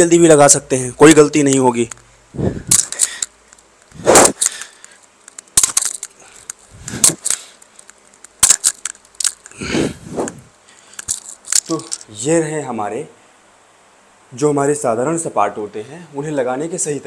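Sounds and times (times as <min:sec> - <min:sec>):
hard breaths into a microphone: 0:02.3 - 0:03.3, 0:06.2 - 0:07.6, 0:09.5 - 0:11.2
necklace clicks and rattles: 0:02.6 - 0:09.6, 0:10.9 - 0:12.1.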